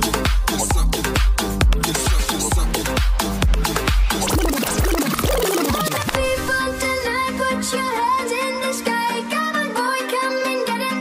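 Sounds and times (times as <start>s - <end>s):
driving kick drum beat: 0.0s - 6.5s
electronic dance music: 0.0s - 9.6s.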